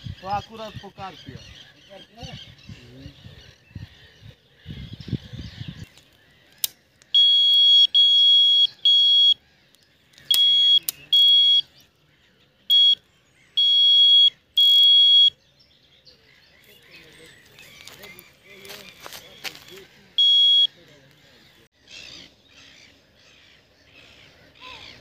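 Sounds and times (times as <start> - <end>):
bite alarm high beeps: 7.2 - 9.4, 10.3 - 11.7, 12.7 - 15.4, 20.2 - 20.8.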